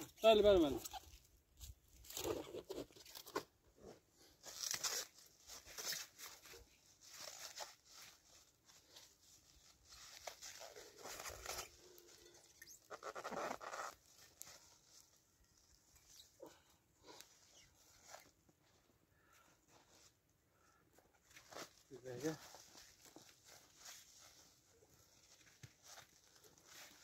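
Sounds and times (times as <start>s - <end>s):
plastic stretch film crackling: 4.5s - 16.5s.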